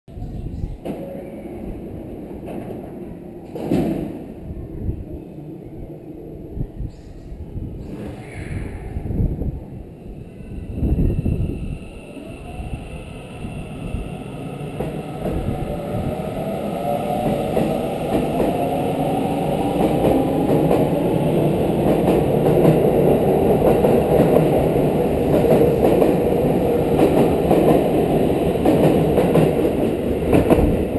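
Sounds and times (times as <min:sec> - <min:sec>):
train wheels clattering on rails: 0:21.8 - 0:30.9.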